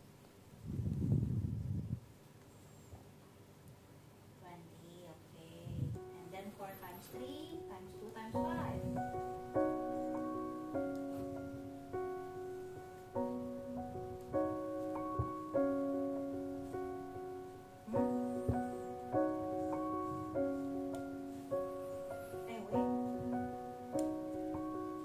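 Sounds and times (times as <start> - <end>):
slow piano chords: 5.4 - 25.0.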